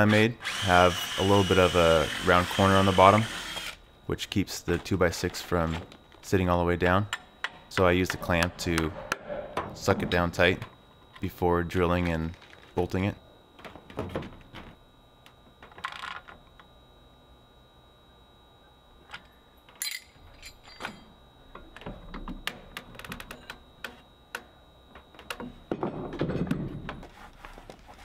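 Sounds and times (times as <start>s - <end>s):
light metallic clicks and clinks: 19.7s - 21.0s.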